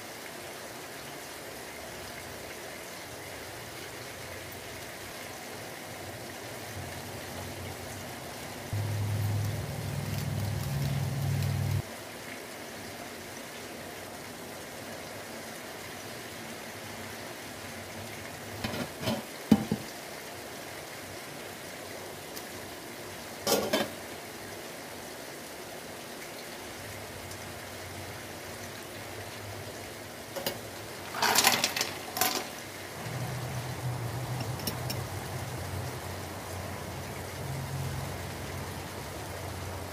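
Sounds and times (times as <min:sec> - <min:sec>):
steady hiss: 0:00.0 - 0:15.8
low hum: 0:08.8 - 0:11.8
cookware and utensils clinking: 0:23.5 - 0:23.9, 0:31.2 - 0:32.6.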